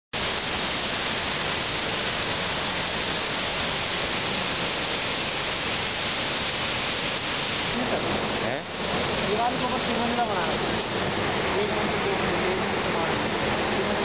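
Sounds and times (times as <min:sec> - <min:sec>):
river rushing: 0:00.2 - 0:14.0.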